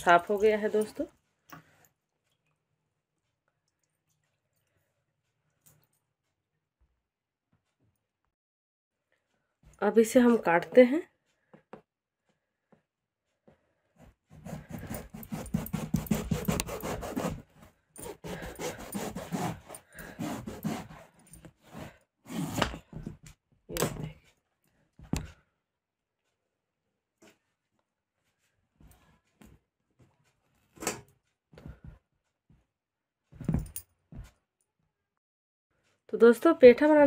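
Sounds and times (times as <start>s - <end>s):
knife sawing through gourd: 14.3s - 22.8s.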